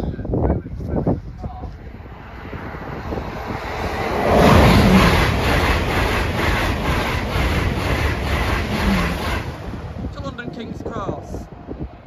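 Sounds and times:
train rushing past: 0:01.7 - 0:12.0
wheels clattering over rails: 0:03.4 - 0:10.3.

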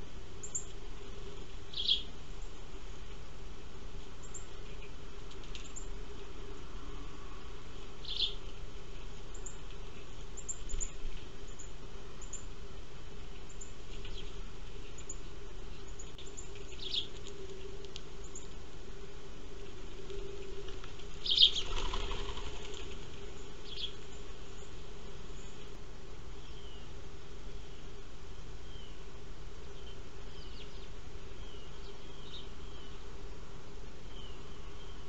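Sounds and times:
sparrows chirping: 0:00.4 - 0:02.6, 0:04.2 - 0:06.6, 0:07.7 - 0:12.6, 0:13.2 - 0:17.6, 0:19.9 - 0:25.8, 0:26.4 - 0:27.0, 0:27.6 - 0:33.1, 0:34.0 - 0:35.0
wings flapping: 0:19.9 - 0:23.3.

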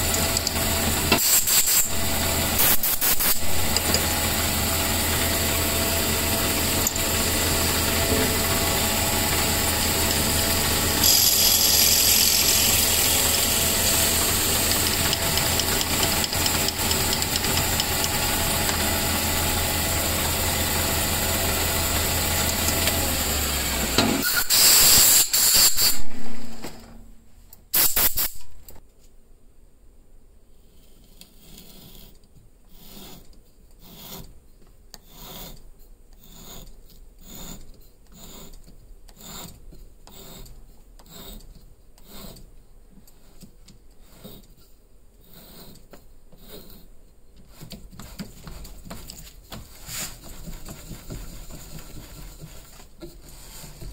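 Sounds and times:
lathe humming while drilling wood: 0:01.9 - 0:02.7, 0:03.4 - 0:24.2.

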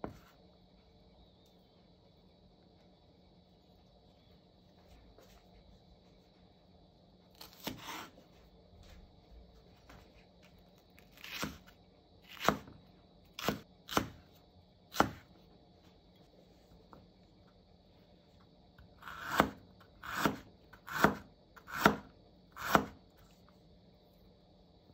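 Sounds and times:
knife cutting onion on board: 0:07.3 - 0:08.2, 0:11.0 - 0:15.4, 0:18.9 - 0:23.0.

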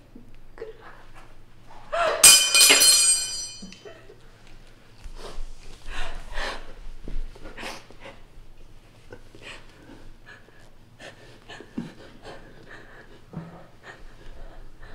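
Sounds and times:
heavy gasping breaths: 0:09.1 - 0:14.9.

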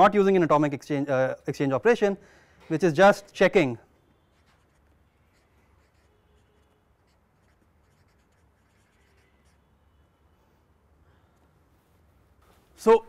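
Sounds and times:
marker scratching on paper: 0:04.2 - 0:09.8.

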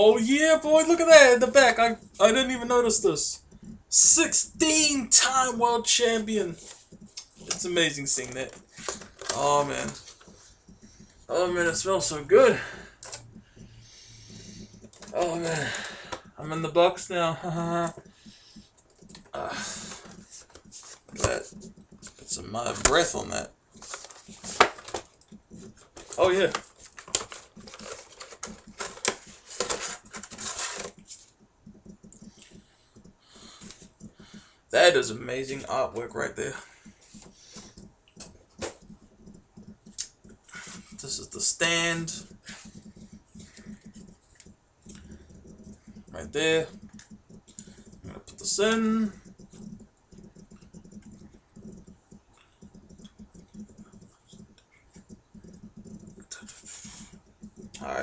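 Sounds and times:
packaging rustling: 0:06.5 - 0:11.1, 0:23.7 - 0:31.3
scraping and crinkling: 0:17.8 - 0:32.6.

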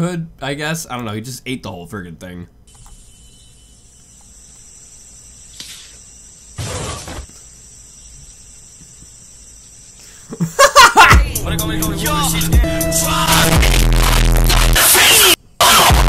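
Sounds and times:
high-pitched insect drone: 0:02.7 - 0:12.2
loud music with heavy bass: 0:11.1 - 0:16.0.

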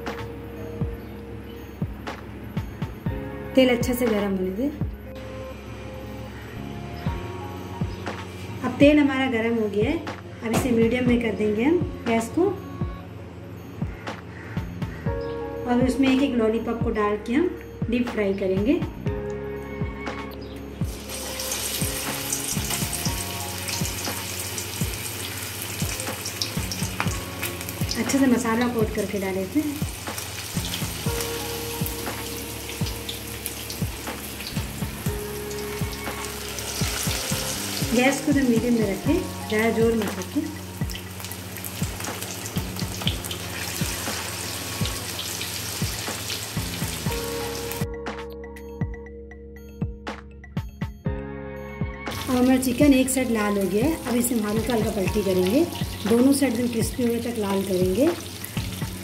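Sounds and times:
background music with soft beat: 0:00.0 - 0:59.0
chicken sizzling in hot oil: 0:20.8 - 0:47.8, 0:52.1 - 0:59.0.

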